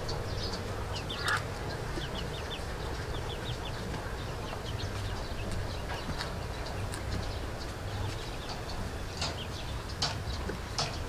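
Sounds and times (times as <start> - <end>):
birds chirping: 0.0 - 11.0
low background noise: 0.0 - 11.0.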